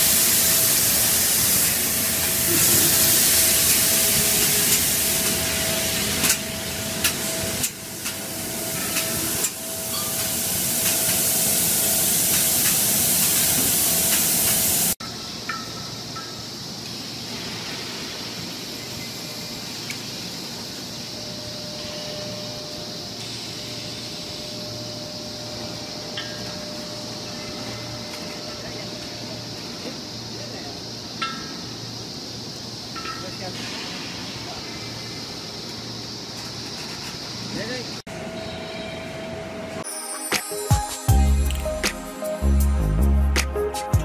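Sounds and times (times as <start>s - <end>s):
pressurised gas hissing: 0.0s - 6.4s
factory noise with low hum: 0.0s - 39.8s.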